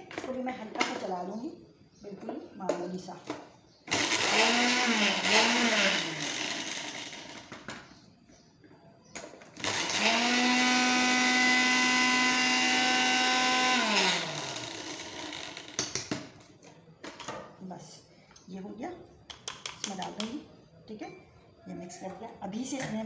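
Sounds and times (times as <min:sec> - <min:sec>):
electric grinder motor whine: 0:03.9 - 0:07.6, 0:09.6 - 0:15.8.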